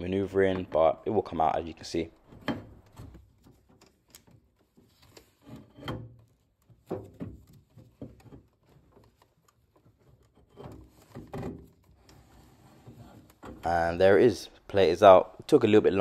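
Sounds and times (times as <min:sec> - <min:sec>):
metal knocks clunks and scraping: 0:02.1 - 0:04.0, 0:05.2 - 0:08.9, 0:09.9 - 0:14.2.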